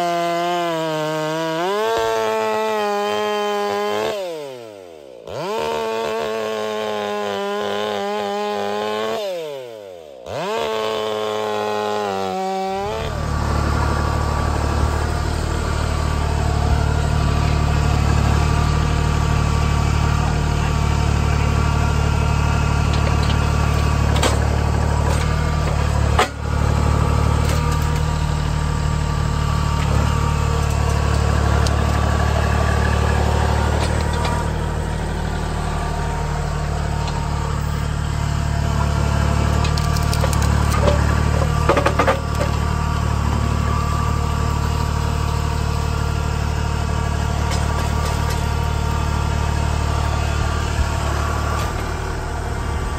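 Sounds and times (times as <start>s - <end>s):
chainsaw running: 0.0s - 52.9s
tractor diesel engine running: 10.3s - 52.9s
grapple ripping out stumps: 29.7s - 35.6s, 38.8s - 45.8s.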